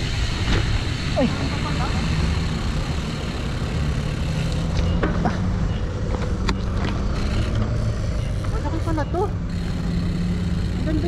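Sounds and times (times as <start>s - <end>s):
faint engine hum: 0.0s - 11.0s
road traffic rumble: 0.0s - 11.0s.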